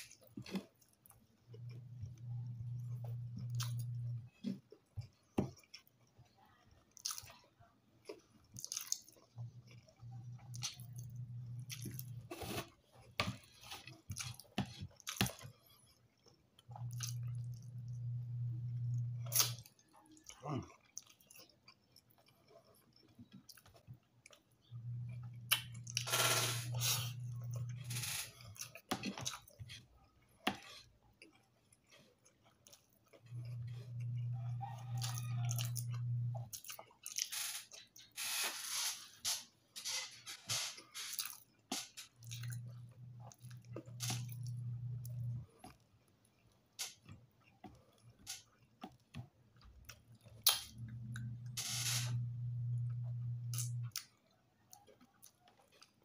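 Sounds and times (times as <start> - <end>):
low steady hum: 0.0 - 6.4, 8.0 - 14.4, 16.6 - 21.2, 23.5 - 30.6, 33.1 - 36.8, 41.0 - 45.8, 49.8 - 54.0
chewing and crunching food: 0.0 - 56.0
wet mouth clicks and smacks: 50.4 - 50.8.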